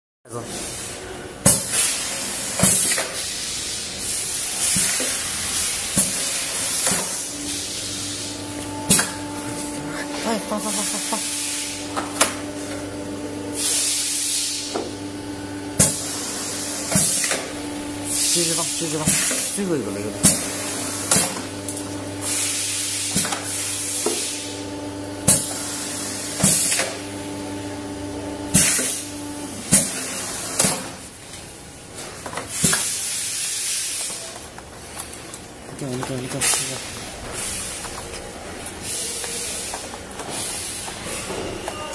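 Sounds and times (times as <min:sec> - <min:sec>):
compressed air hissing: 0:01.7 - 0:12.4, 0:13.5 - 0:15.0, 0:15.8 - 0:21.4
steady machine hum: 0:05.4 - 0:32.0.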